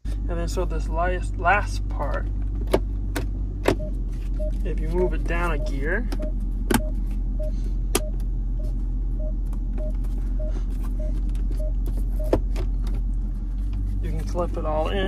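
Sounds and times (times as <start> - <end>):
steady low hum: 0.0 - 15.0
dashboard warning chime beeping: 3.7 - 12.4.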